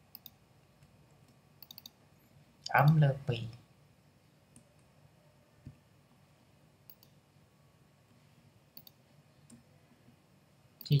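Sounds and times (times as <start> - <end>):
mouse and keyboard clicks: 0.1 - 2.0, 8.8 - 9.6.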